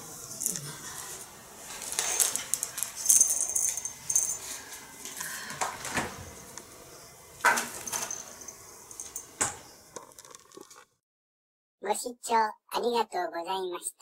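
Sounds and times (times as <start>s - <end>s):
light metallic jingling: 1.9s - 4.8s, 7.4s - 9.8s.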